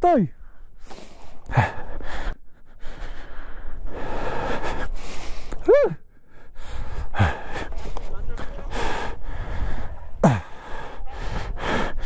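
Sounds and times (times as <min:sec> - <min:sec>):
man panting: 0:00.5 - 0:12.0
man grunting: 0:10.2 - 0:10.5.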